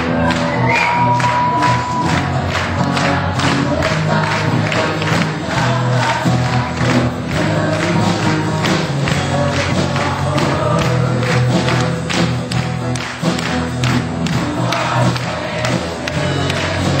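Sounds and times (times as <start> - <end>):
drum kit beat: 0.0 - 17.0
electric guitar: 0.0 - 17.0.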